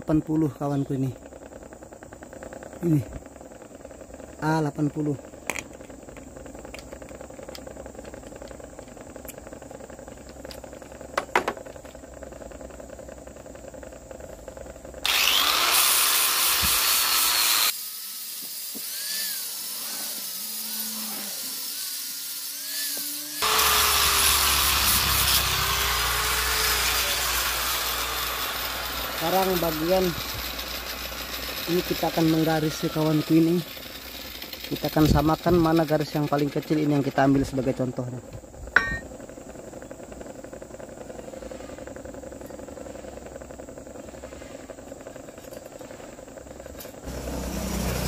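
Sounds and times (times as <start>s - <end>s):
angle grinder sanding metal: 15.0s - 37.2s, 47.0s - 48.0s.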